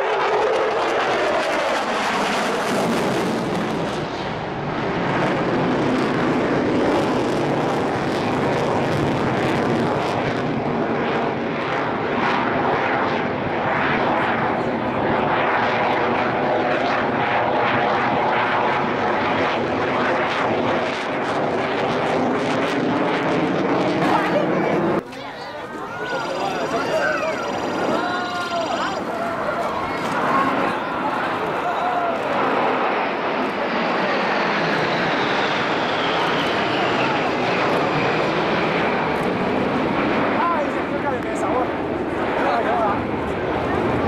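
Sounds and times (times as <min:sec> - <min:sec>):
jet engine noise with whine: 0:00.0 - 0:44.0.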